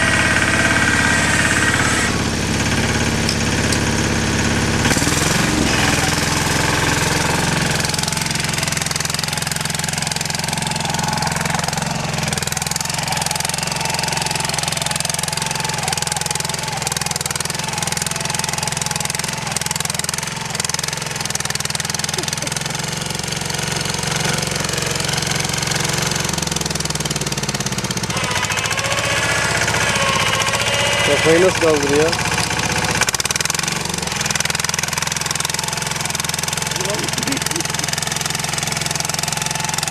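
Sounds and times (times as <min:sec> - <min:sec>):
tiller engine running under load: 0:00.0 - 0:39.9
tines churning soil: 0:00.0 - 0:39.9.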